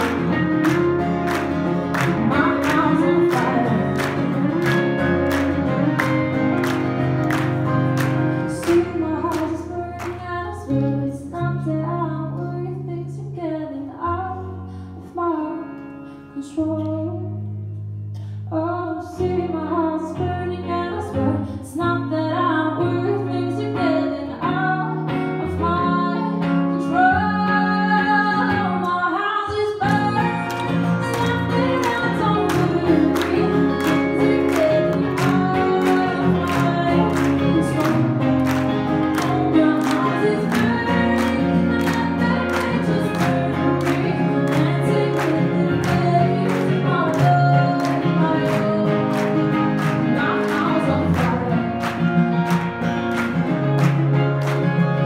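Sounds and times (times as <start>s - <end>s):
strummed acoustic guitar: 0.0s - 10.9s, 29.8s - 55.0s
electric guitar: 0.0s - 55.0s
woman singing: 1.3s - 6.4s, 8.0s - 17.5s, 18.5s - 52.1s.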